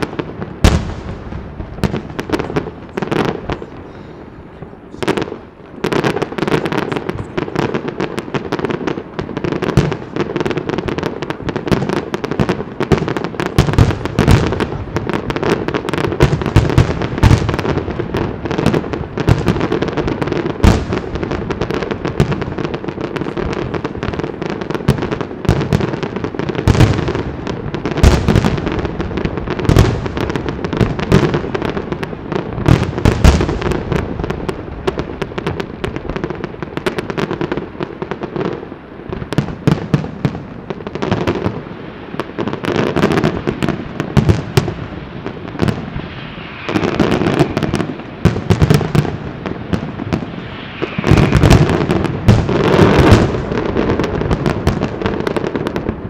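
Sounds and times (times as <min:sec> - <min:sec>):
firework shell bursts: 0:50.0 - 0:53.3.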